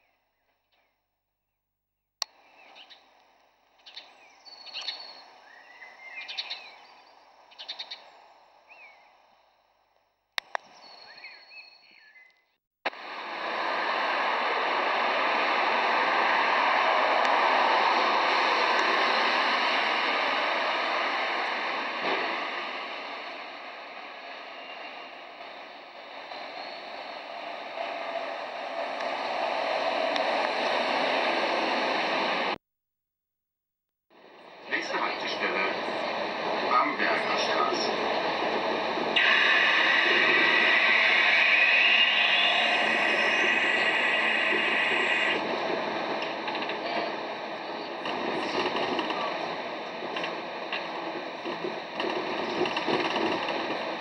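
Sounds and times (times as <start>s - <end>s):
faint bird chirps: 2.4s - 3.1s, 3.8s - 9.2s, 10.6s - 12.5s
road traffic rushing: 12.9s - 32.6s, 34.2s - 48.6s
bus driving past: 13.0s - 23.9s.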